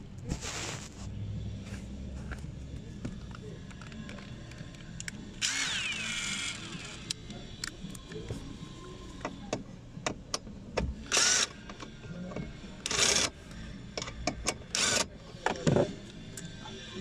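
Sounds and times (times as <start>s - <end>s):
cordless drill whirring: 5.4s - 7.1s, 11.1s - 11.6s, 14.8s - 15.0s.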